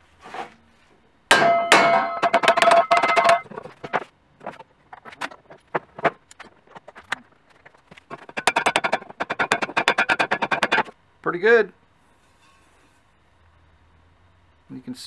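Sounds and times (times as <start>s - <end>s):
hammer striking metal tube: 1.3s - 3.4s.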